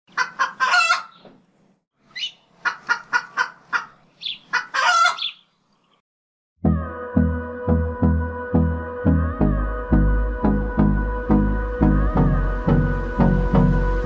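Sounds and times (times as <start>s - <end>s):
chicken squawk: 0.1s - 1.2s, 2.1s - 5.4s
chicken clucking: 0.1s - 1.3s, 2.1s - 5.4s
music with pulsing bass: 6.6s - 14.0s.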